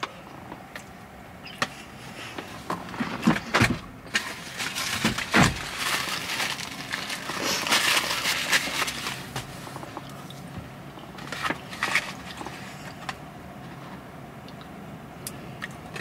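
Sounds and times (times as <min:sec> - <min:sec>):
paper wrapper crinkling: 0:04.1 - 0:09.7, 0:11.2 - 0:12.6.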